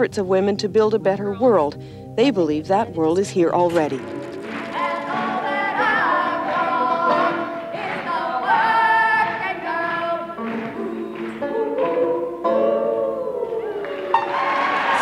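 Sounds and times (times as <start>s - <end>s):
two women singing: 4.7s - 15.0s.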